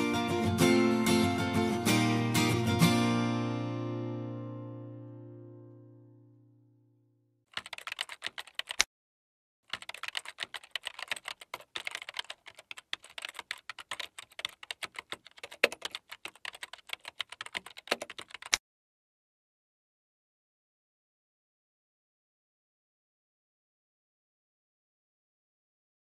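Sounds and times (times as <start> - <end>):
keyboard typing clicks: 7.6 - 8.9, 9.7 - 18.6.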